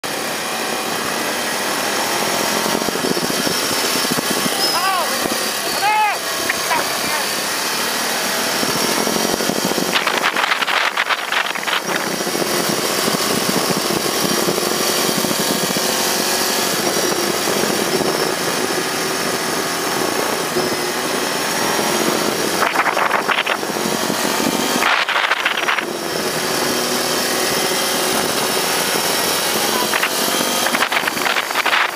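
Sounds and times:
motorcycle engine: 0:00.0 - 0:31.9
wind rush over microphone: 0:08.5 - 0:15.9, 0:16.5 - 0:31.9.

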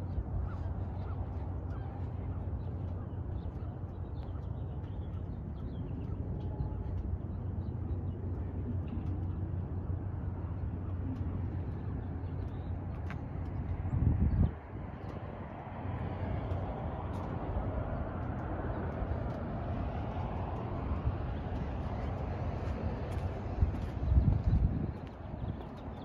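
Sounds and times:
steady low rumble: 0:00.0 - 0:26.0
faint bird calls: 0:00.3 - 0:06.8.

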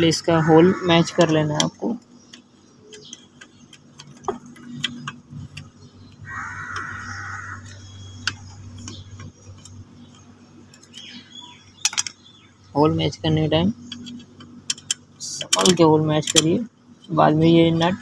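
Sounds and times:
low hum: 0:00.0 - 0:18.0
metal parts clicking and tapping: 0:01.1 - 0:05.8, 0:07.6 - 0:11.2, 0:11.8 - 0:12.2, 0:13.9 - 0:17.2.

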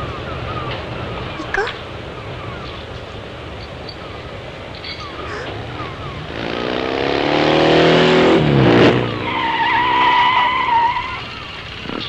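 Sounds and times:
tyres skidding screech: 0:03.9 - 0:12.0
motorcycle engine passing: 0:04.0 - 0:12.0.

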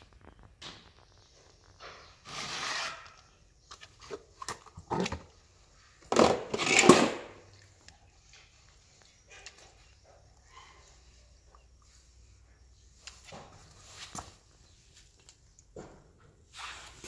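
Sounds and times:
plastic tub scraping concrete: 0:01.9 - 0:07.5.

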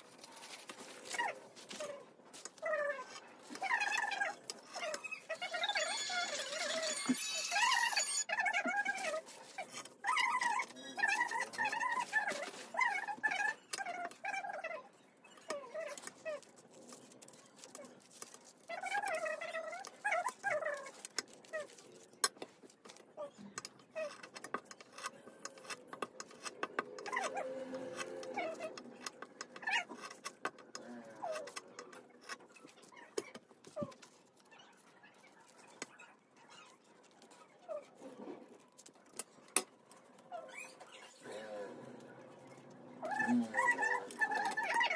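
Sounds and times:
paper rustling: 0:00.0 - 0:05.4.

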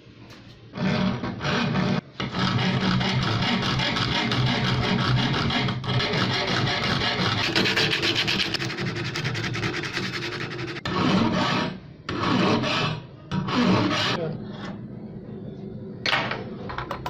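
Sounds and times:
metal being filed by hand: 0:00.8 - 0:14.2.

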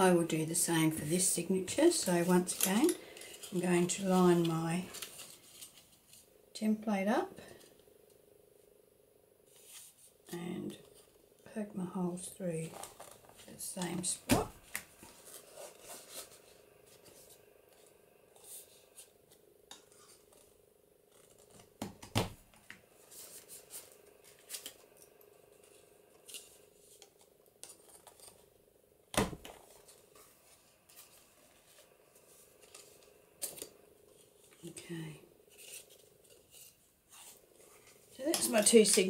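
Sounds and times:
paper rustling: 0:02.2 - 0:06.2, 0:12.6 - 0:21.8, 0:22.6 - 0:28.6, 0:29.5 - 0:34.8, 0:35.5 - 0:39.0.

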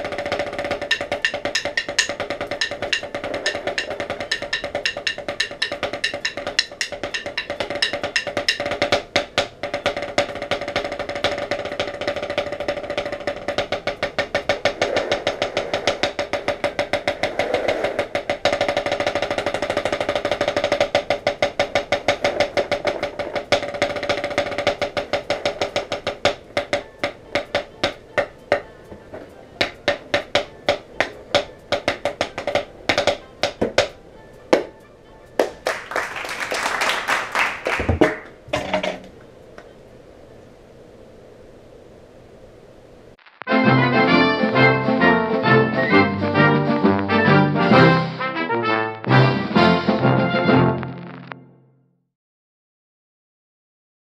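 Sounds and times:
snare drum rolls: 0:00.0 - 0:28.7, 0:35.4 - 0:39.1.

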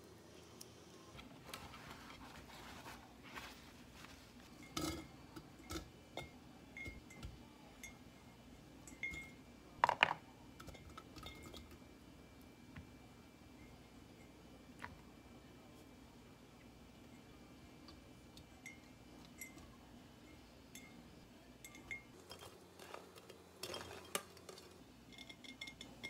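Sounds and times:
paper towel rustling: 0:01.2 - 0:04.6
food clinking into glass jar: 0:23.6 - 0:26.0.

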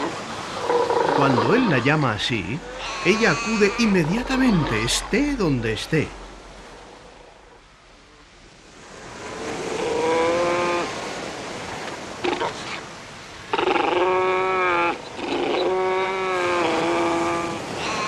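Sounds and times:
surf hiss: 0:00.0 - 0:15.2
fur seals calling: 0:00.6 - 0:05.8, 0:13.5 - 0:18.0.

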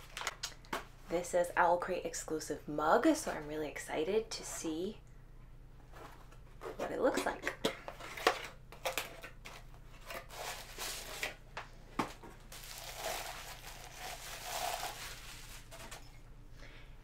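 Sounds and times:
bubble wrap crinkling: 0:09.4 - 0:11.4, 0:12.4 - 0:16.0.

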